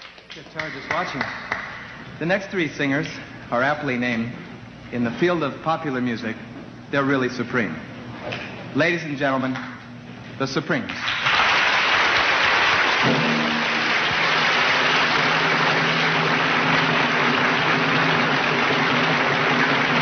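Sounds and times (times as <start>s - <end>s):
audience applauding: 0.0s - 2.0s, 11.0s - 20.0s
music with sustained notes: 13.0s - 20.0s.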